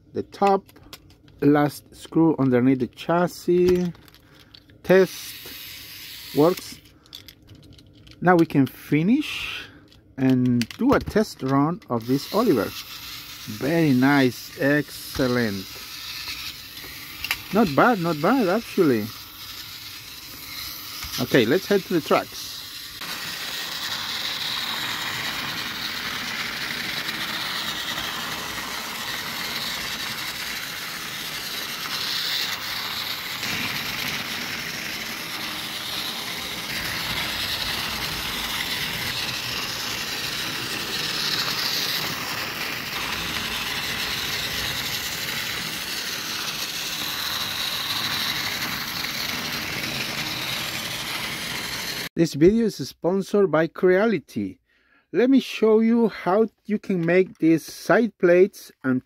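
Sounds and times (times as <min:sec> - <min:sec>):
toy train wheels rattling: 0:00.4 - 0:52.1
toy train motor whirring: 0:01.6 - 0:52.2.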